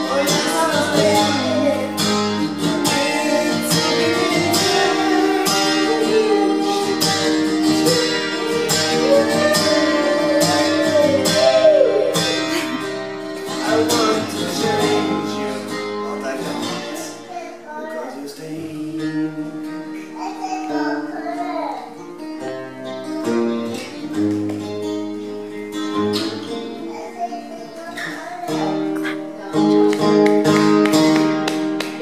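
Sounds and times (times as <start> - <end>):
person singing: 0.0 - 21.5
acoustic guitar strummed: 0.0 - 32.0.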